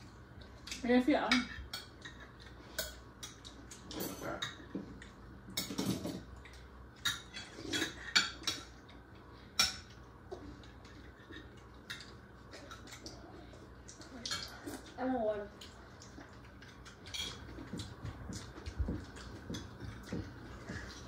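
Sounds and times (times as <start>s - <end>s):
cutlery clinking on plates: 5.5s - 6.3s, 7.0s - 8.8s, 16.9s - 20.8s.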